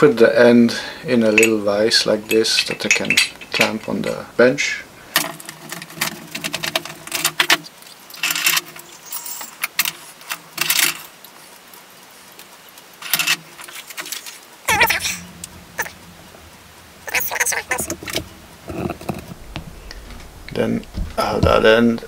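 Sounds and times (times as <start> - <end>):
metal tools clinking and rattling: 1.4 - 4.3, 8.2 - 10.0
heavy thump: 17.8 - 22.0.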